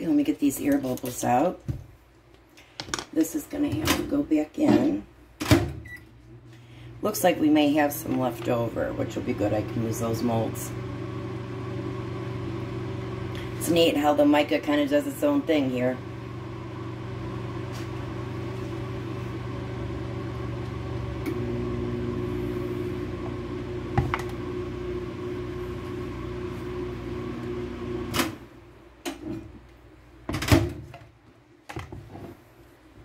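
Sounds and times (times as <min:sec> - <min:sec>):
microwave oven humming: 0:05.7 - 0:28.8.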